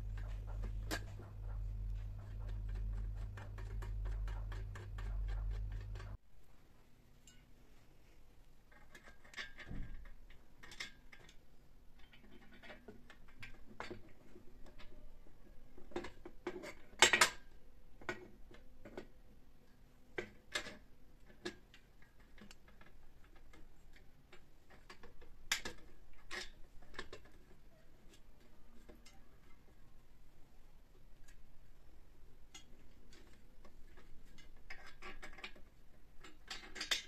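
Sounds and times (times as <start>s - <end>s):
household items clicking and clinking: 0.0s - 6.2s.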